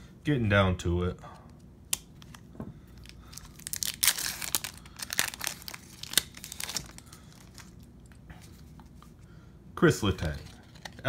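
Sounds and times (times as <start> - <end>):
foil wrapper crinkling and tearing: 3.0 - 7.9.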